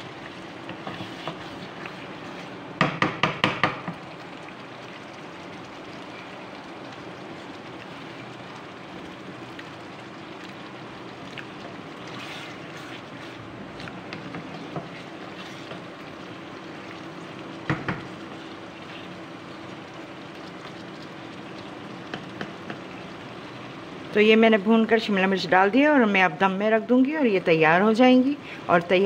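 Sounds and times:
food frying with hiss: 0:00.0 - 0:26.2
spoon scraping pan: 0:00.7 - 0:02.6, 0:12.1 - 0:13.4.

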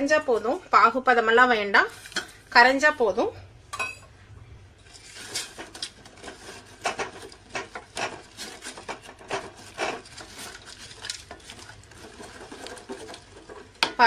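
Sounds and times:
wooden spatula scraping steel pot: 0:04.8 - 0:14.0.

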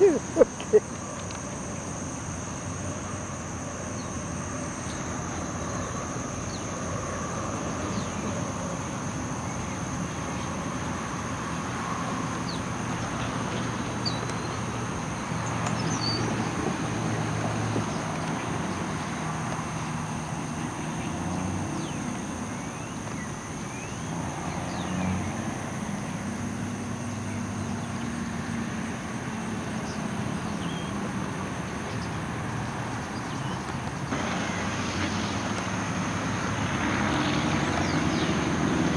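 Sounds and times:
road traffic rumble: 0:00.0 - 0:38.9.

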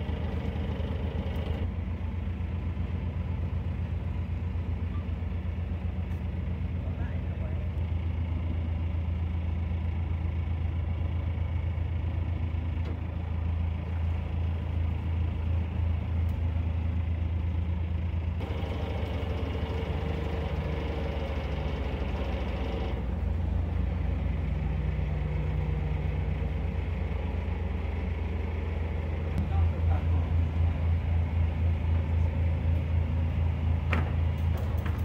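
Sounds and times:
boat engine running: 0:00.0 - 0:01.9, 0:13.0 - 0:32.6.

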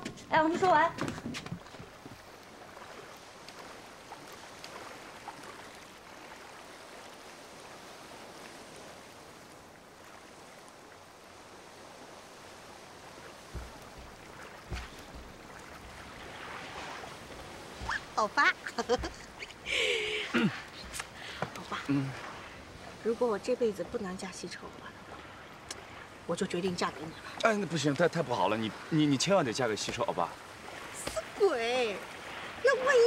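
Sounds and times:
small waves lapping: 0:00.0 - 0:33.0
short low thumps: 0:13.5 - 0:16.0.

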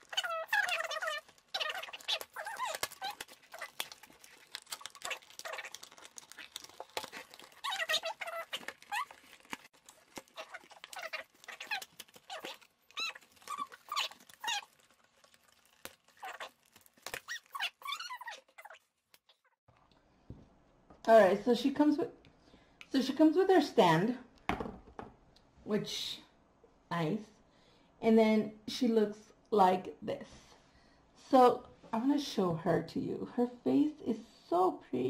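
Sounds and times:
pet whining: 0:00.0 - 0:19.5.

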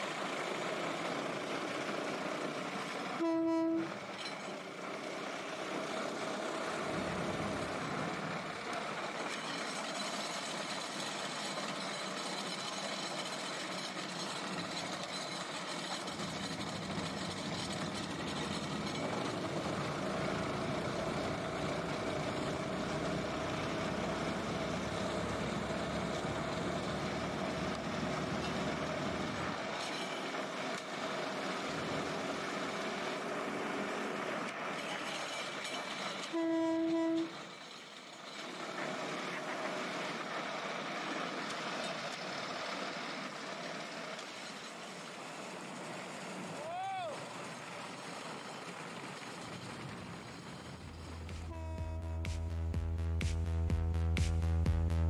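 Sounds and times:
rail speeder running on rails: 0:00.0 - 0:55.0
horn honk: 0:03.2 - 0:04.0, 0:36.3 - 0:37.4, 0:51.3 - 0:52.9.

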